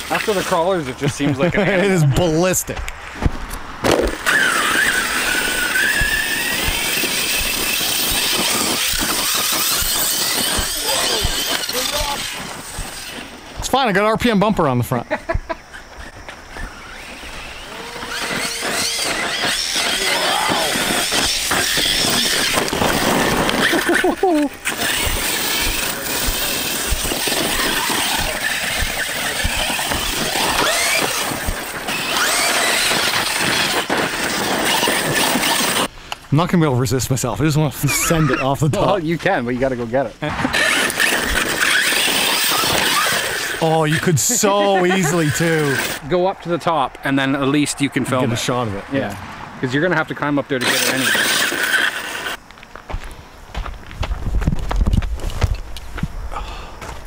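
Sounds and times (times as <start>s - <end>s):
tyres hissing on loose dirt: 0.0s - 2.6s, 4.1s - 48.8s, 49.6s - 54.8s
electric motor whining: 3.9s - 13.6s, 15.8s - 35.9s, 40.5s - 46.0s, 50.5s - 52.4s.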